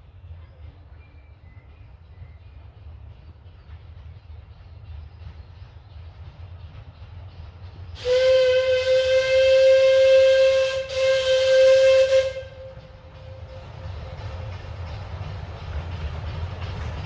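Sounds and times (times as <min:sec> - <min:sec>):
low rumble of passing train: 0:00.0 - 0:17.0
steam locomotive whistle: 0:08.0 - 0:14.0.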